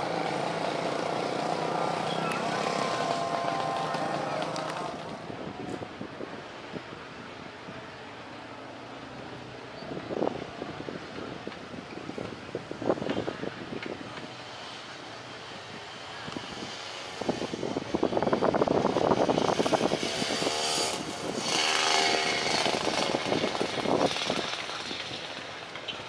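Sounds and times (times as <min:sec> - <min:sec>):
motorcycles passing: 0:00.0 - 0:26.0.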